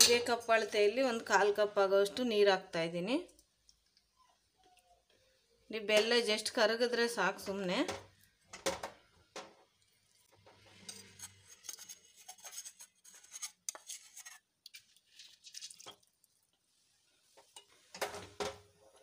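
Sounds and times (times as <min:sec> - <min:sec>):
spoon scraping steel bowl: 0:10.6 - 0:15.8.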